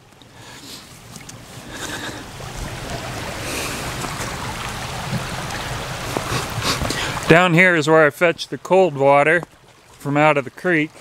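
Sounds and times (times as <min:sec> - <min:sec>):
shallow creek running: 0:00.0 - 0:11.0
wind buffeting microphone: 0:02.2 - 0:07.3.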